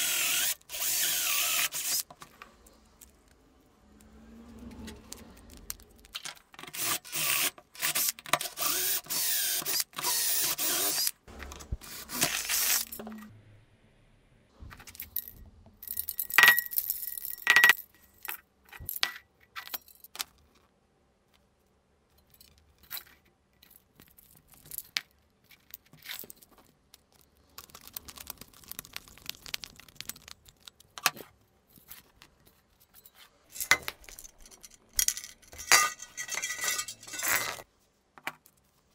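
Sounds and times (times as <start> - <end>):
drill screeching into metal: 0.0 - 2.0, 6.7 - 11.1, 11.8 - 13.0
metallic clink: 14.9 - 18.4, 32.8 - 37.6.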